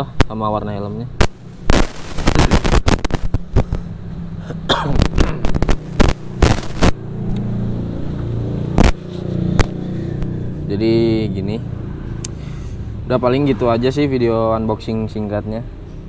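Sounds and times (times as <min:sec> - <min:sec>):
vehicle engine hum: 0:00.7 - 0:16.0
sharp knocks and crackles: 0:01.2 - 0:07.5, 0:08.1 - 0:10.3.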